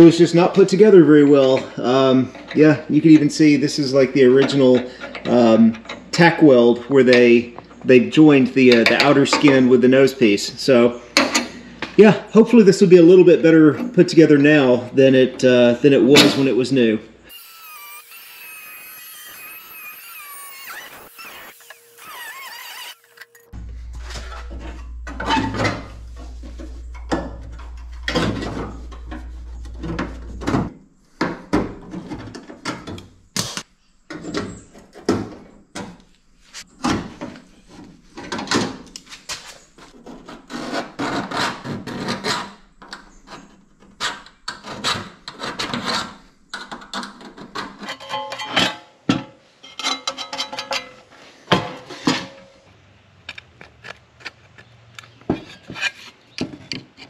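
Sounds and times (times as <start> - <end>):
sheet metal clanking: 23.2 - 33.2
steady low hum: 23.3 - 31.8.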